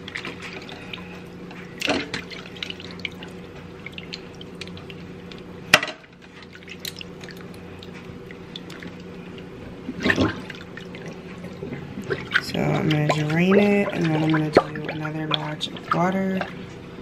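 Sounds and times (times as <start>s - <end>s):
water dripping in a sink: 1.8s - 5.5s, 6.6s - 9.1s.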